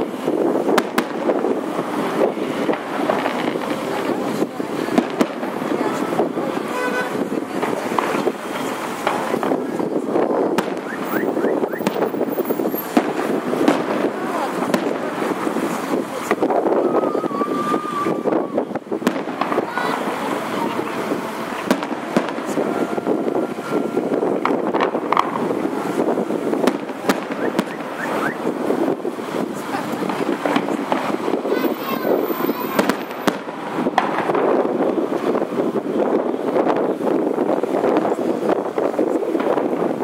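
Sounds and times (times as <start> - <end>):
fireworks bangs: 0.0 - 40.0
traffic noise: 0.0 - 40.0
rising firework whistles: 9.7 - 13.8, 14.8 - 29.4, 30.2 - 35.6.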